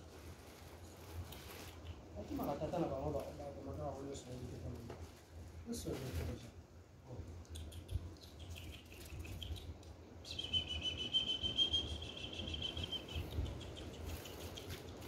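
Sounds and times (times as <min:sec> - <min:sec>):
bird high trilled call: 0:10.2 - 0:14.4.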